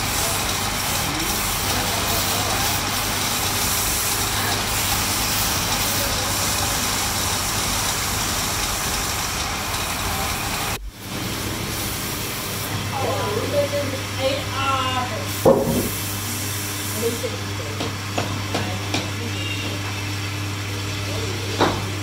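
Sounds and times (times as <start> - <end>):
wood lathe running: 0.0 - 10.8.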